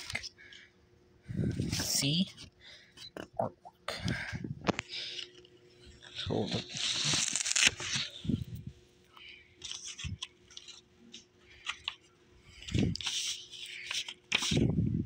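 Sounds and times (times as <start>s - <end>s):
paper tearing and crinkling: 6.3s - 8.2s, 12.6s - 14.8s.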